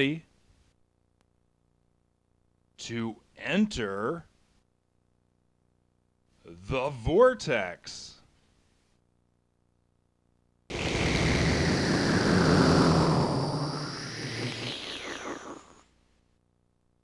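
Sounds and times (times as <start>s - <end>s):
swirling whoosh: 10.7s - 15.8s.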